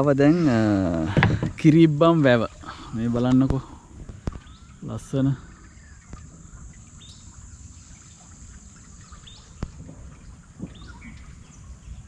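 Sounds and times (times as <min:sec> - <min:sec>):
low background hiss: 0:00.0 - 0:12.0
insect drone: 0:00.2 - 0:12.0
bird chirps: 0:04.3 - 0:09.7, 0:10.6 - 0:12.0.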